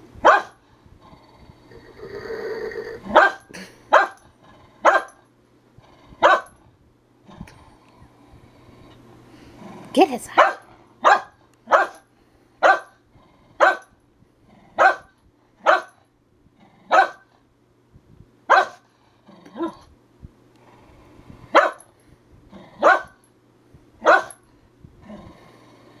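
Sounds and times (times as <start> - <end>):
dog barking: 0.2 - 0.6, 3.1 - 4.2, 4.8 - 5.2, 6.2 - 6.5, 10.4 - 12.0, 12.6 - 13.0, 13.6 - 13.9, 14.8 - 16.0, 16.9 - 17.3, 18.5 - 18.8, 21.5 - 21.8, 22.8 - 23.2, 24.0 - 24.4.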